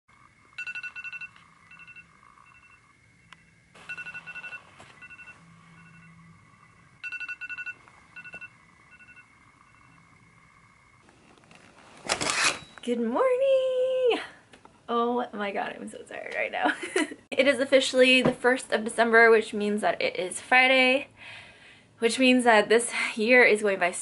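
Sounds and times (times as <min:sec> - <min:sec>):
phone alarm beeps: 0:00.6 - 0:02.9, 0:03.8 - 0:10.1.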